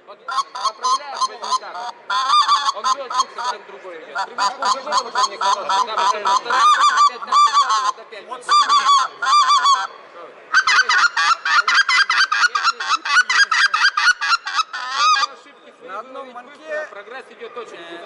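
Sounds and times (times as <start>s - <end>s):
goose call honks: 0.3s - 3.6s, 4.2s - 9.9s, 10.5s - 15.3s.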